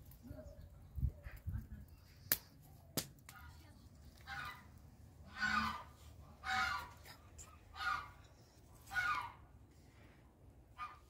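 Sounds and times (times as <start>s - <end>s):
fowl calling: 5.3s - 7.0s, 7.8s - 8.2s, 8.8s - 9.5s.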